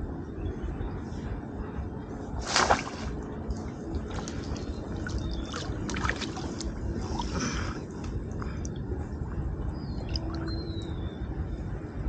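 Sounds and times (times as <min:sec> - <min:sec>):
steady low rumble: 0:00.0 - 0:12.0
water splashing: 0:02.4 - 0:03.2.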